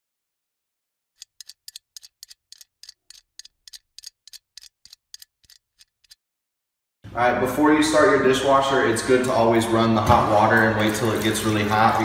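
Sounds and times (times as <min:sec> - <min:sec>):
sharp ticking clicks: 0:01.2 - 0:06.2.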